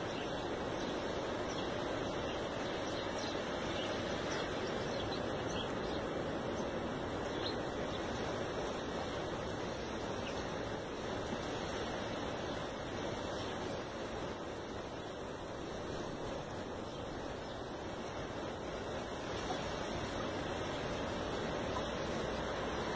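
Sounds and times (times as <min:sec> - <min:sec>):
small birds chirping: 0:00.0 - 0:10.6, 0:16.5 - 0:22.9.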